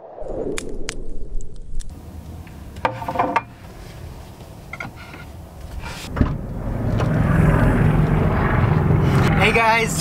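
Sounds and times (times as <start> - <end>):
low hum: 0.0 - 10.0
car door thud: 6.1 - 6.4.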